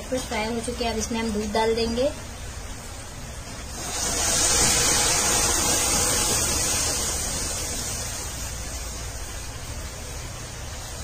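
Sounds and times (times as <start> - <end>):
hot fat hissing: 3.5 - 10.0
milk pouring into pan: 3.7 - 8.4.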